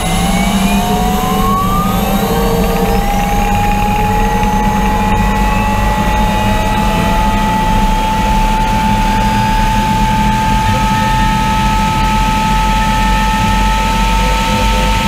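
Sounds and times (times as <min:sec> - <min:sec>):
turbine engine whining: 0:00.0 - 0:15.0.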